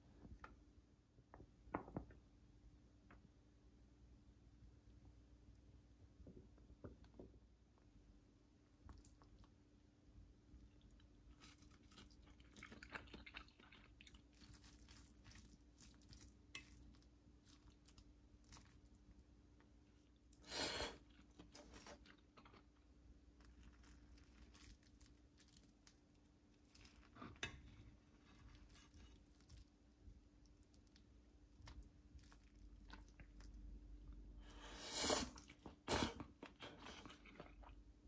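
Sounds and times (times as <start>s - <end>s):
person chewing with crunching: 8.8s - 9.6s, 10.7s - 19.2s, 19.9s - 27.4s, 28.2s - 37.9s.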